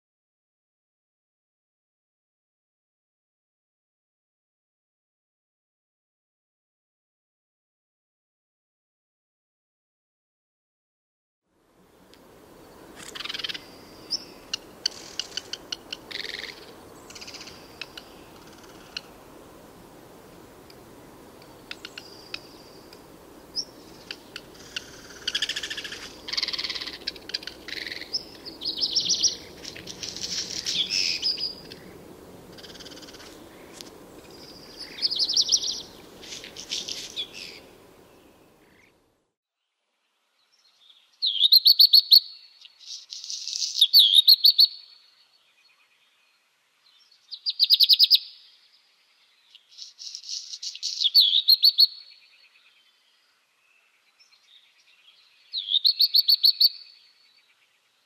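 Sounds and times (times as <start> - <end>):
background hiss: 11.5 - 58.0
bird singing: 12.6 - 19.1, 21.4 - 39.0, 40.4 - 58.0.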